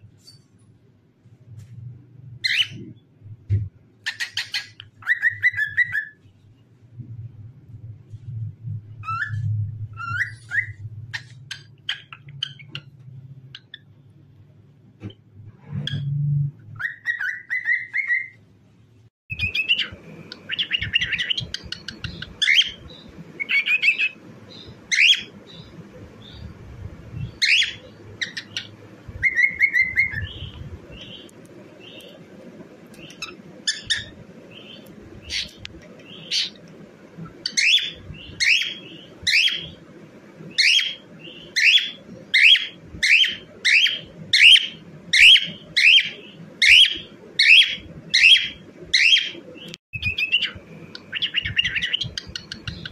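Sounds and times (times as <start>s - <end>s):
cockatiel whistling and chirping: 4.1s - 6.2s, 9.0s - 12.8s, 16.8s - 18.4s, 19.3s - 22.8s, 23.4s - 24.2s, 27.2s - 30.6s, 33.1s - 34.1s, 37.4s - 39.8s, 40.6s - 49.4s, 50.0s - 52.9s.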